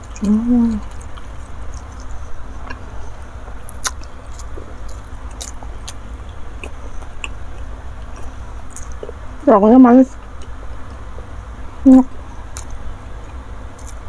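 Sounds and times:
chewing with mouth smacks: 0:00.0 - 0:09.2, 0:12.5 - 0:14.0.

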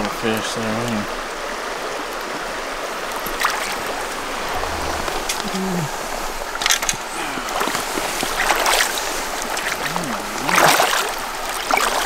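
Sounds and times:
river water running over rocks: 0:00.0 - 0:12.0
splashing in water: 0:03.1 - 0:12.0.

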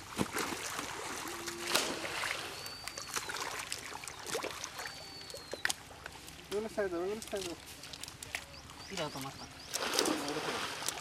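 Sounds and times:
net splashing through mud and water: 0:00.0 - 0:04.9, 0:09.7 - 0:11.0
thin high whistling call: 0:01.5 - 0:05.9.

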